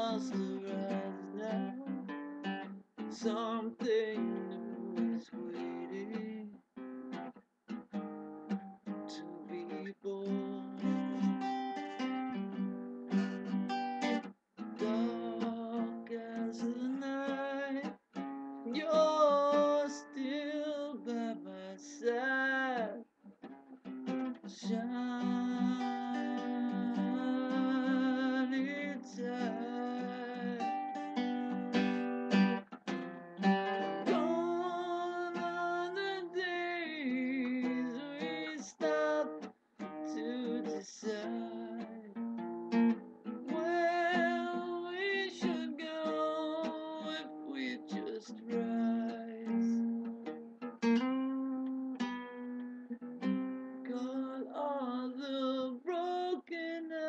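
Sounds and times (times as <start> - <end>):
plucked guitar instrumental: 0.0 - 57.0.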